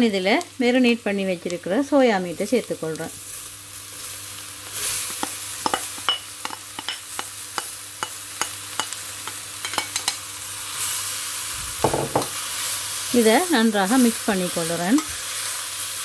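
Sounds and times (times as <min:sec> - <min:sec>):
food sizzling in oil: 0:00.0 - 0:16.0
spoon tapping pan: 0:05.2 - 0:10.2, 0:11.8 - 0:12.4.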